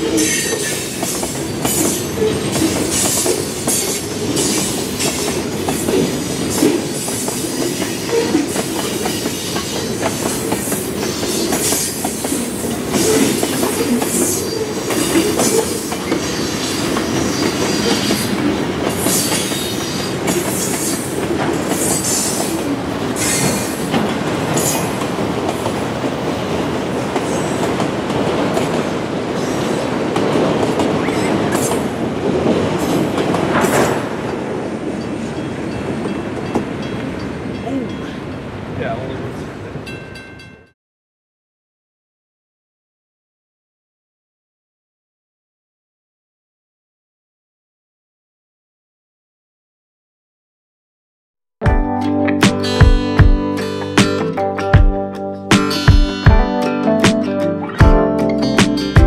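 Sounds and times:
wheels squealing on rails: 0.0s - 25.1s
freight train cars rolling: 0.0s - 40.2s.

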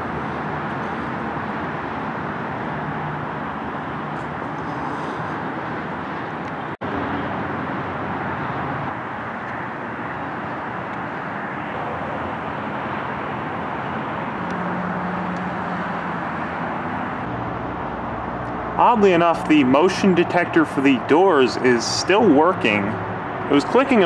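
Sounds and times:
faint engine hum: 0.0s - 24.0s.

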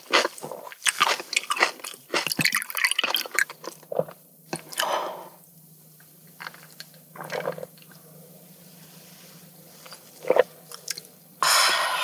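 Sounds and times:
sipping and swallowing: 7.2s - 8.0s
loud burst of noise: 11.4s - 12.0s
short sharp sound: 11.4s - 12.0s.

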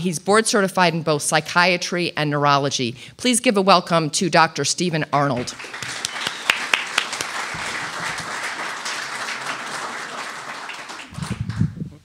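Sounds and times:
audience applauding: 5.4s - 11.8s.

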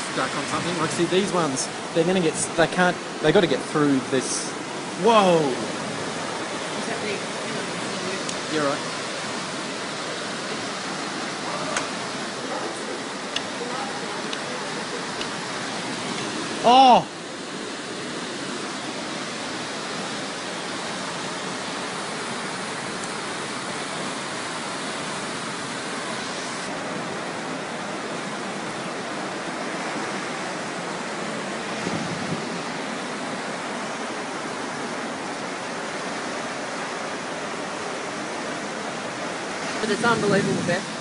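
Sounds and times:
floodwater rushing: 0.0s - 41.0s.

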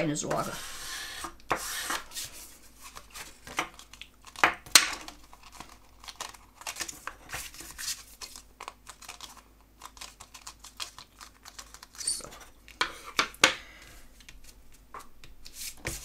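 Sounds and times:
cardstock rustling and crackling: 2.0s - 13.3s.

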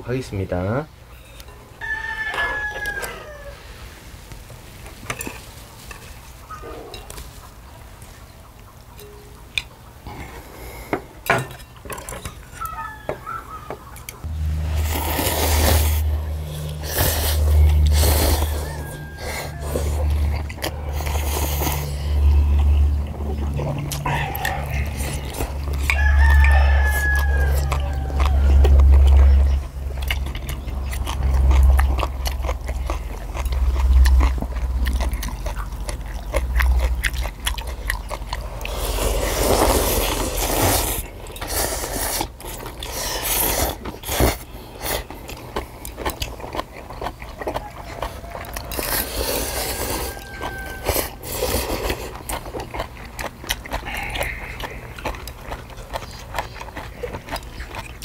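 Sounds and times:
people slurping noodles: 14.6s - 30.0s, 38.4s - 45.1s, 48.6s - 52.3s.

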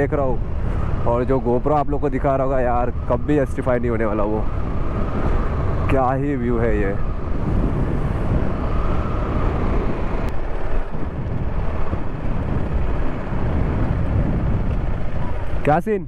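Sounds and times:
wind buffeting microphone: 0.0s - 16.0s
motorcycle engine running: 7.1s - 15.8s.

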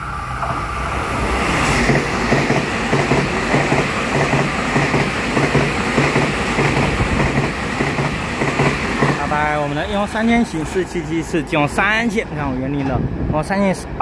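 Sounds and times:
train rolling rumble: 0.0s - 14.0s
train wheels clacking over rail joints: 1.8s - 9.4s.

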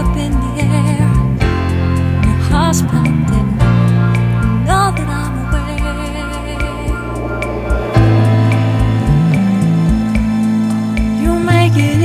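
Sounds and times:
pop song: 2.2s - 10.2s, 11.0s - 12.0s.

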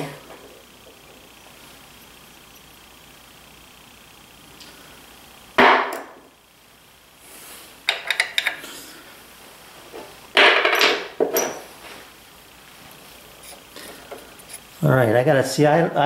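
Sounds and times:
metal parts and tools clattering: 10.4s - 11.7s.

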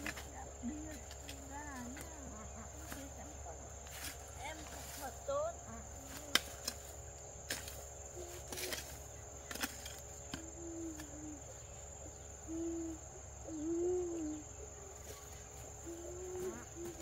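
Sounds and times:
high insect drone: 0.0s - 17.0s
bird calling: 8.0s - 17.0s.

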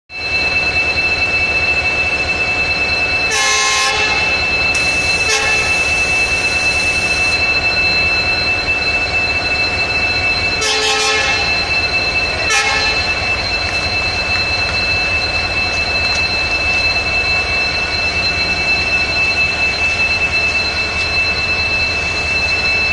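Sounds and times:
steady high-pitched tone: 0.1s - 22.9s
locomotive horn blasts: 3.3s - 7.2s, 10.6s - 11.6s, 12.5s - 13.1s.

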